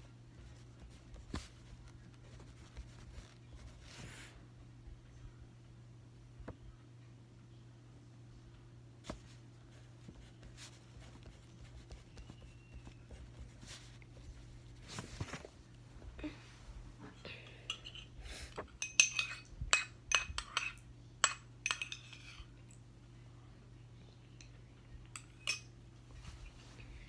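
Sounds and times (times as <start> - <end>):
faint steady hum: 0.0 - 27.0
faint handling rustles: 9.0 - 17.0, 26.0 - 27.0
objects clinking against ceramic cup: 18.8 - 22.5.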